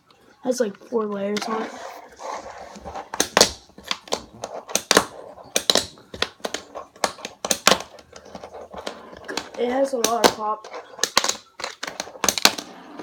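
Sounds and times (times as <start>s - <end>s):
fingerboard deck clacking: 1.3s - 13.0s.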